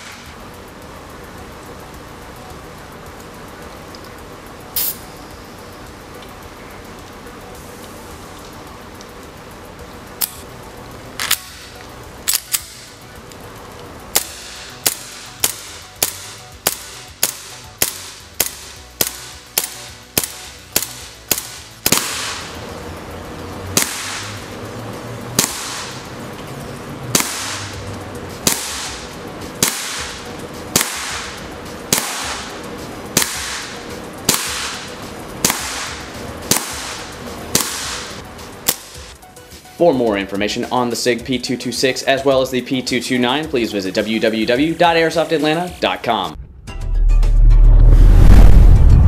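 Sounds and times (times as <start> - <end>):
airsoft pistol shots: 14.1 - 22.6, 23.8 - 24.4, 25.4 - 26.0, 27.1 - 27.8, 28.4 - 32.6, 33.2 - 39.1.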